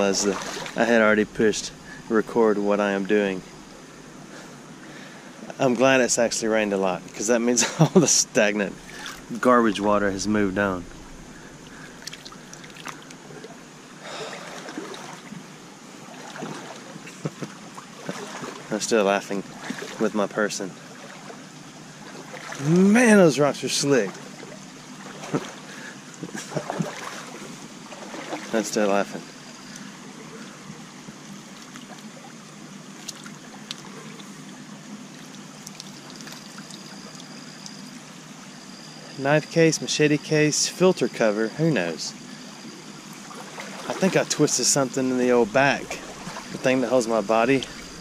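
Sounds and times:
creek water running over rocks: 0:00.0 - 0:38.5, 0:41.7 - 0:48.0
faint clicks: 0:35.3 - 0:37.8.

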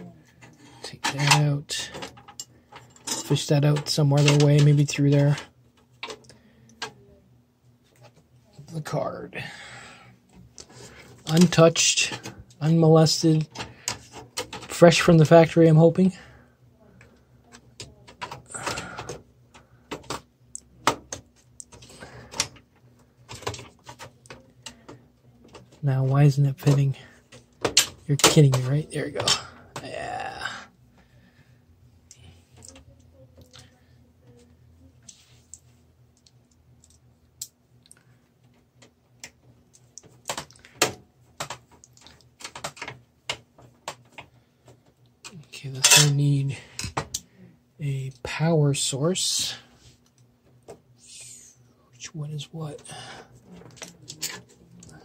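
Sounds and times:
cables clicking against metal case: 0:36.2 - 0:46.1.

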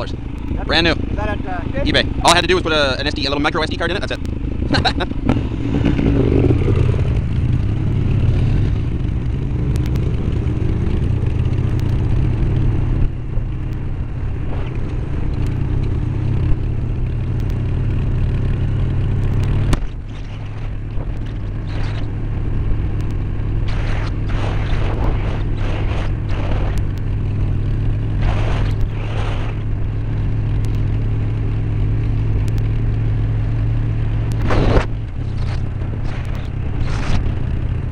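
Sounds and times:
motorcycle engine droning: 0:00.0 - 0:37.9
rushing wind noise: 0:18.6 - 0:31.8.

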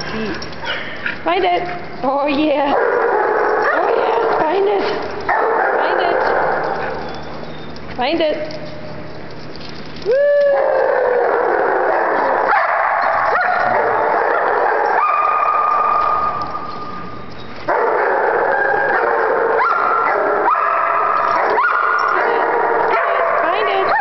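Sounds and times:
dogs barking and yipping: 0:00.0 - 0:24.0
dog whining: 0:05.8 - 0:07.9.

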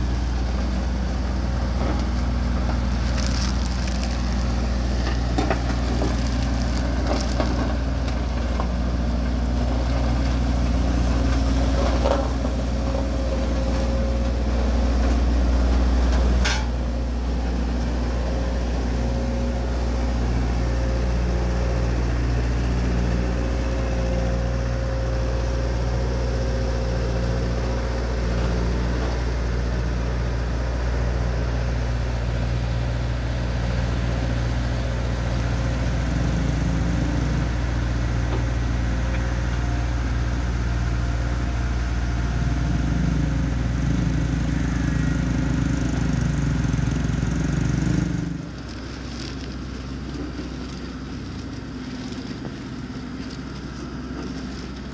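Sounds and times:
road roller diesel engine running: 0:00.0 - 0:54.9.

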